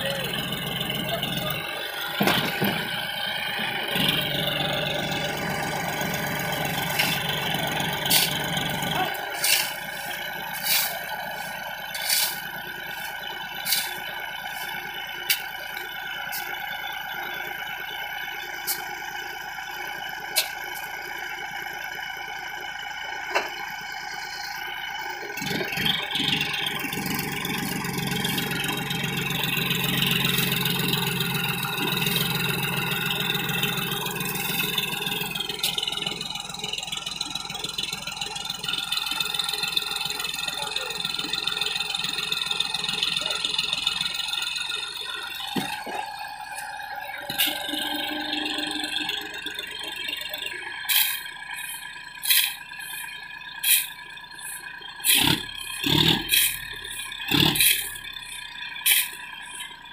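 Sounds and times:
tractor diesel engine: 0:00.0 - 0:59.9
shovel digging sand: 0:09.2 - 0:12.4, 0:13.6 - 0:14.0, 0:50.9 - 0:53.0, 0:53.6 - 0:53.9, 0:55.0 - 0:56.7, 0:57.3 - 0:58.0, 0:58.8 - 0:59.2.

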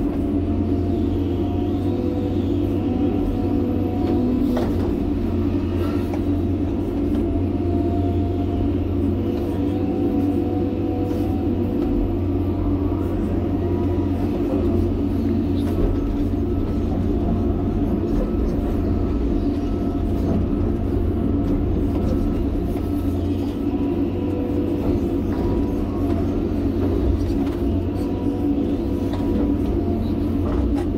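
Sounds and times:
excavator engine rumble: 0:00.0 - 0:30.9.

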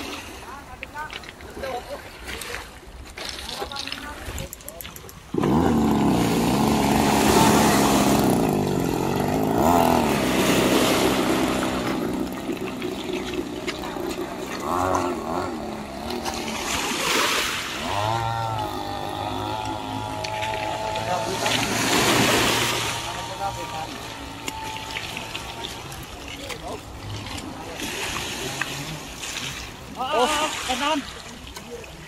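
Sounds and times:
two-stroke boat engine revving: 0:05.0 - 0:30.8.

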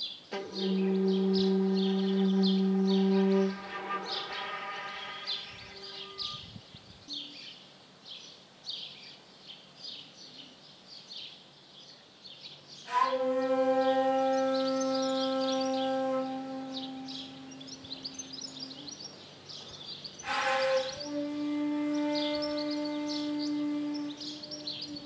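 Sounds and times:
small birds chirping: 0:00.0 - 0:12.9, 0:14.3 - 0:21.2, 0:22.0 - 0:25.0
bamboo flute note: 0:00.3 - 0:06.5, 0:12.9 - 0:18.9, 0:20.2 - 0:25.0.

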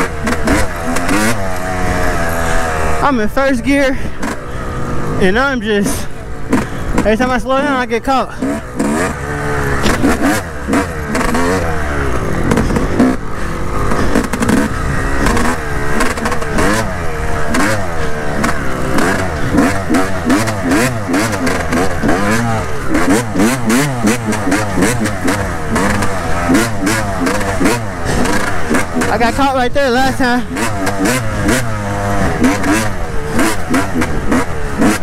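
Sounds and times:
dirt bike engine revving: 0:00.0 - 0:35.0
knocks from the bike: 0:12.4 - 0:13.2.

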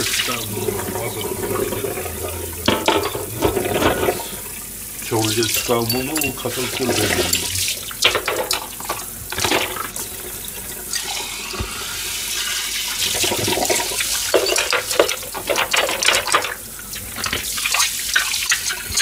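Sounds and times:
tap running into sink: 0:00.0 - 0:04.3
dishes clinking: 0:00.4 - 0:04.4, 0:05.4 - 0:08.7, 0:13.3 - 0:16.5.

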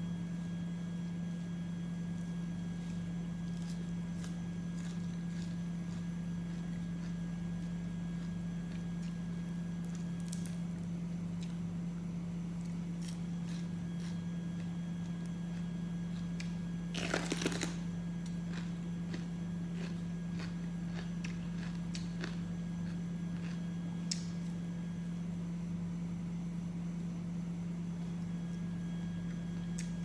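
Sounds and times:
steady low hum: 0:00.0 - 0:30.0
crisp vegetable crunch: 0:01.9 - 0:24.6.

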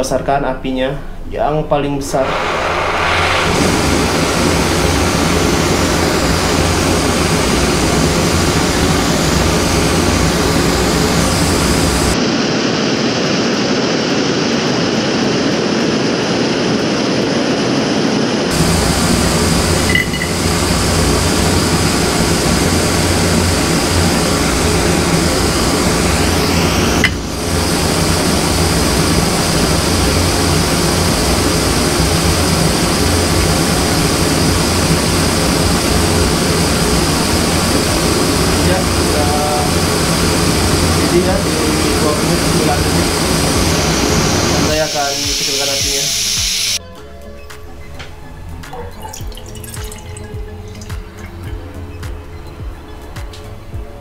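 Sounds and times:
gas stove burner hissing: 0:01.0 - 0:12.2, 0:18.5 - 0:46.8.

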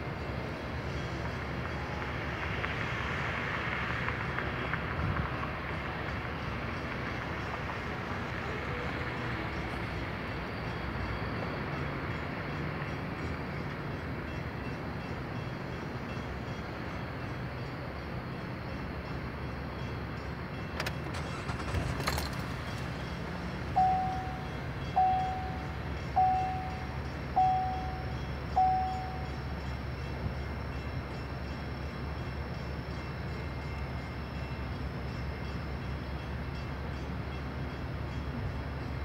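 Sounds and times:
idling traffic hum: 0:20.4 - 0:39.0
warning bell ringing: 0:23.7 - 0:29.7.

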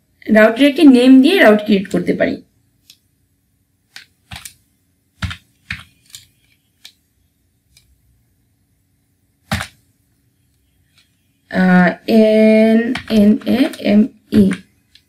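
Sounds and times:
keyboard keystrokes: 0:03.9 - 0:04.6.

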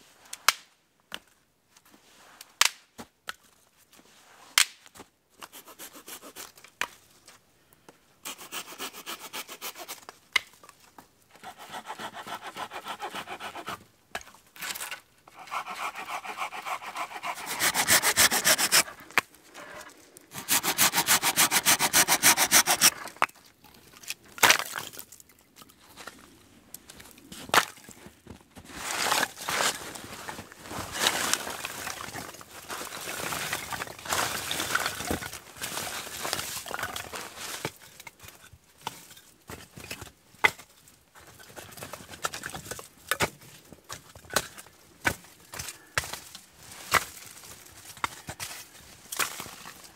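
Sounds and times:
hand saw cutting branches: 0:08.2 - 0:10.0, 0:11.4 - 0:13.8, 0:15.3 - 0:19.1, 0:20.3 - 0:23.0
rustling of sticks: 0:09.7 - 0:49.9.

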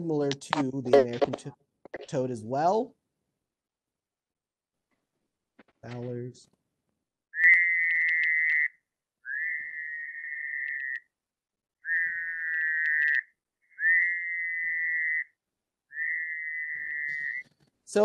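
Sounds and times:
toad trilling: 0:07.3 - 0:11.1, 0:11.8 - 0:17.5.

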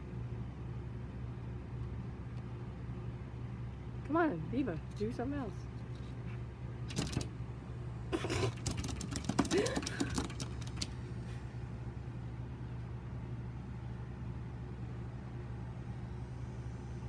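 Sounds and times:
steady low hum: 0:00.0 - 0:17.0
dog claws scratching on glass door: 0:06.9 - 0:07.3, 0:08.2 - 0:11.0.

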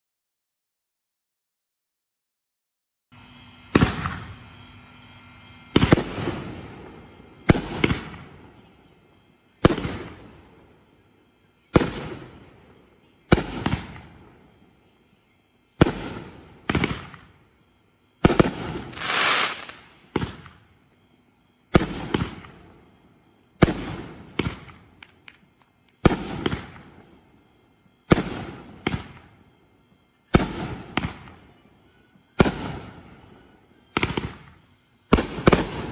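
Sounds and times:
fireworks booming: 0:03.7 - 0:04.7, 0:05.7 - 0:08.6, 0:09.6 - 0:10.5, 0:13.3 - 0:14.4, 0:15.8 - 0:17.4, 0:18.2 - 0:20.6, 0:21.7 - 0:22.8, 0:23.6 - 0:25.2, 0:26.0 - 0:27.2, 0:28.0 - 0:29.4, 0:30.3 - 0:31.6, 0:32.4 - 0:35.9.

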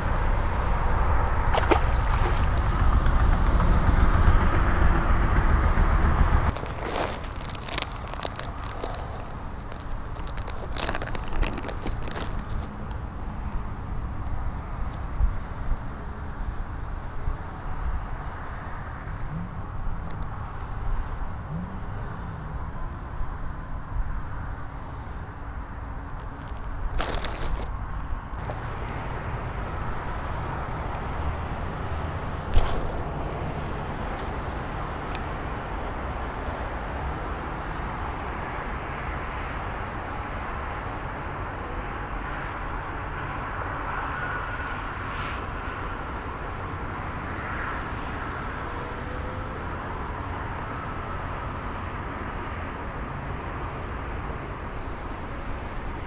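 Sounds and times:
low outdoor rumble: 0:00.0 - 0:37.7
sharp crack: 0:06.5 - 0:13.0
brief rustle: 0:32.2 - 0:34.3.

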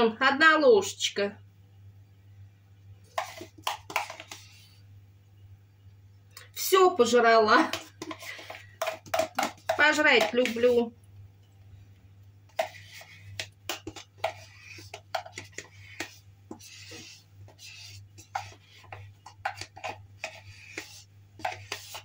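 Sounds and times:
low steady hum: 0:00.0 - 0:22.0
spoon scraping plastic container: 0:03.1 - 0:04.8, 0:07.6 - 0:10.9, 0:12.5 - 0:22.0.

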